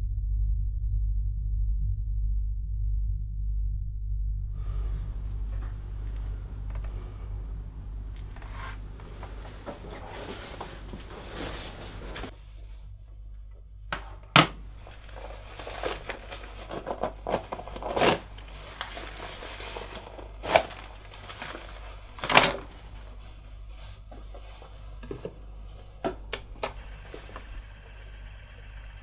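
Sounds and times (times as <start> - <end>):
low steady hum: 0.0 - 29.0
objects handled at a desk: 8.1 - 12.4, 13.9 - 26.8.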